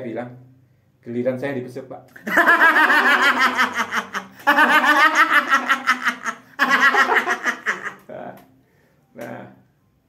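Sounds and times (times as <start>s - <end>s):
man laughing loudly: 2.2s - 8.1s.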